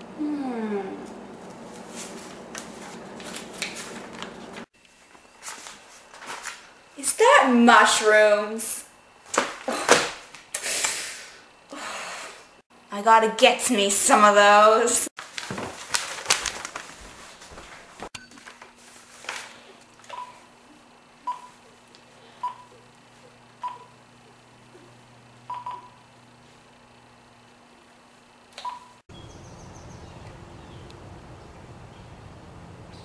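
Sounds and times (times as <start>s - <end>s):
phone keypad beeps: 25.5s - 26.0s.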